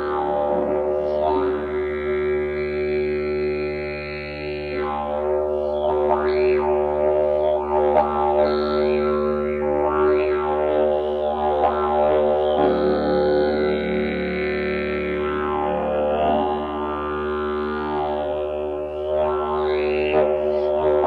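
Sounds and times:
didgeridoo drone echoing: 0:00.0 - 0:21.0.

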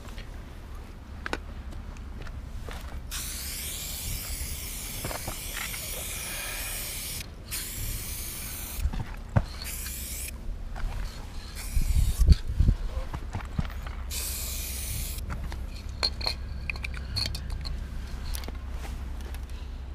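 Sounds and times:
spray can hissing: 0:03.1 - 0:08.8, 0:09.5 - 0:10.3, 0:11.4 - 0:12.4, 0:14.1 - 0:15.2.

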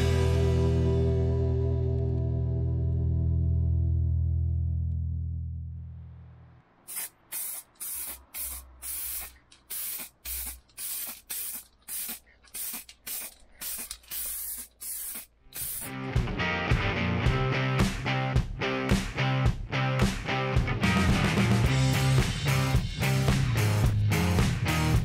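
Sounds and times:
aerosol spray can hissing: 0:06.9 - 0:16.0.

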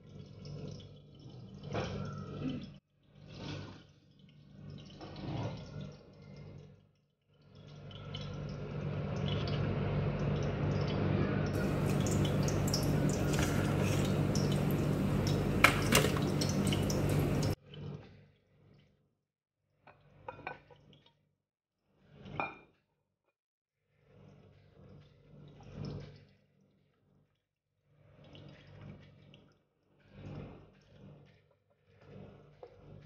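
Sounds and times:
low hum: 0:07.9 - 0:17.6
oil sizzling in a frying pan: 0:11.6 - 0:17.6.

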